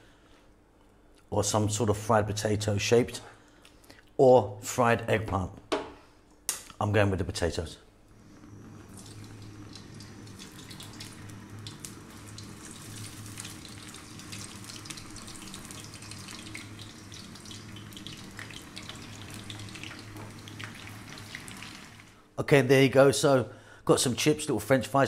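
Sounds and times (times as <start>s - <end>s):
low electric hum: 0.0s - 24.3s
potatoes sizzling in oil: 8.5s - 22.2s.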